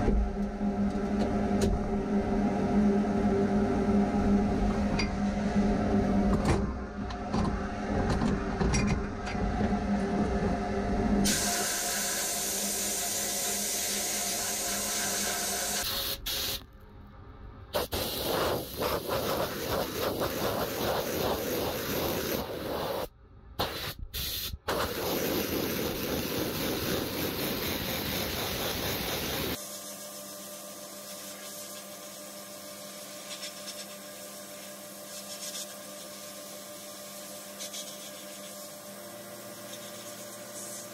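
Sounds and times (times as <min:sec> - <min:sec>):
steady hum: 0:00.0 - 0:15.9, 0:16.6 - 0:23.9
sandblasting hiss: 0:11.2 - 0:16.6, 0:17.8 - 0:38.9.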